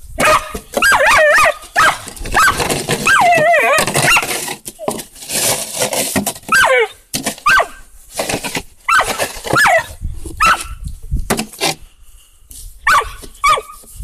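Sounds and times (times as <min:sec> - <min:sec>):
dog barking: 0:00.2 - 0:04.2, 0:06.5 - 0:07.8, 0:08.9 - 0:10.8, 0:12.9 - 0:13.8
snow shovel scraping snow: 0:00.2 - 0:06.6, 0:07.2 - 0:10.6.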